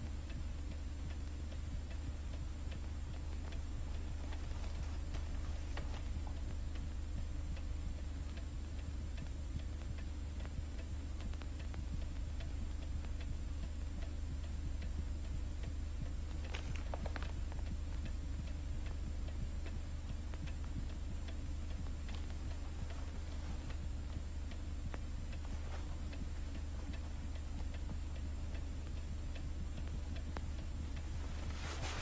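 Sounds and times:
clock ticking: 0.0s - 32.0s
low soundtrack hum: 0.0s - 32.0s
paper rustling: 31.4s - 32.0s.

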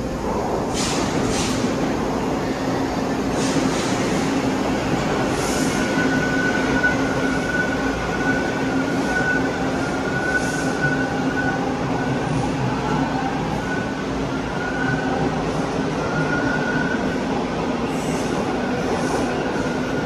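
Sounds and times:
subway train rumbling: 0.0s - 20.0s.

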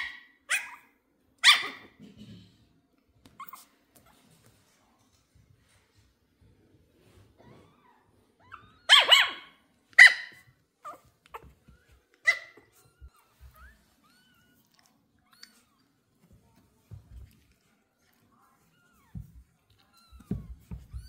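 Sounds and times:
puppy barking: 0.0s - 2.0s, 8.8s - 11.5s.

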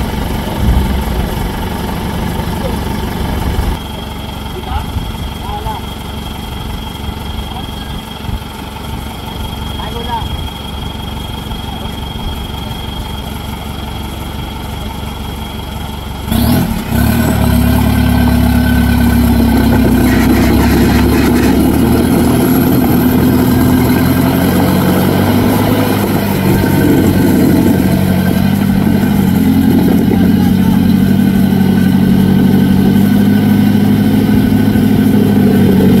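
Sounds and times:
engine revving: 0.0s - 3.8s, 16.3s - 36.0s.

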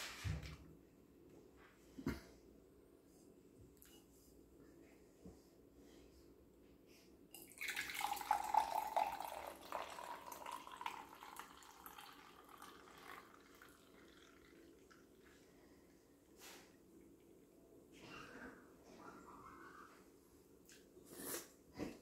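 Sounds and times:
sparkling water pouring and fizzing: 7.5s - 15.4s.

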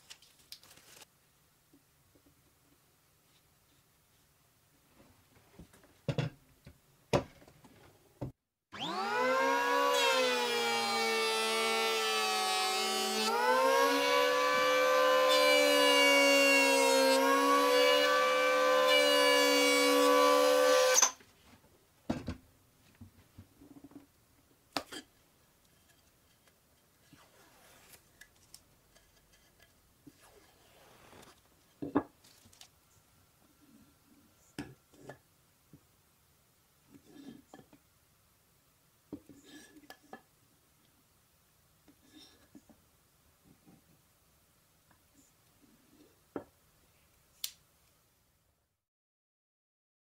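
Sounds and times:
electric hand planer whining: 8.8s - 21.1s.

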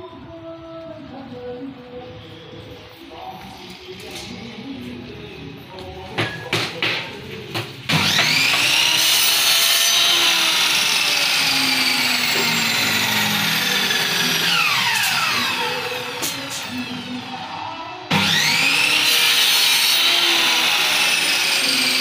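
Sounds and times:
power tool motor whining: 7.9s - 22.0s.

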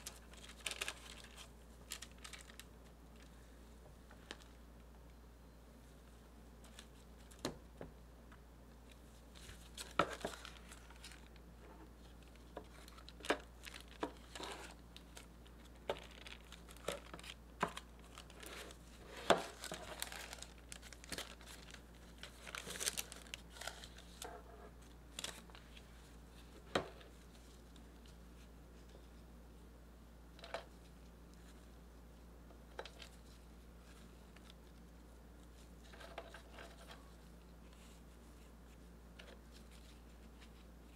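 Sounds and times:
parchment paper crinkling: 0.0s - 3.4s, 8.8s - 29.2s, 32.7s - 40.9s.

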